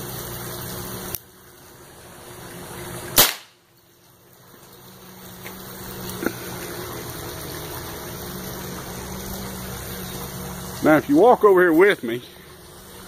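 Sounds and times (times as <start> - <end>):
revolver shot: 3.2 - 3.6.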